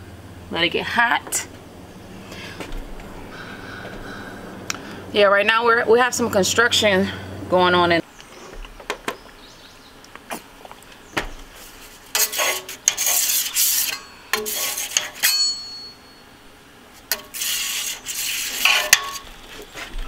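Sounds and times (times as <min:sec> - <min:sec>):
metal spatula scraping steel griddle: 0:11.6 - 0:15.7, 0:17.1 - 0:19.7
blade clinking on steel: 0:13.7 - 0:16.2.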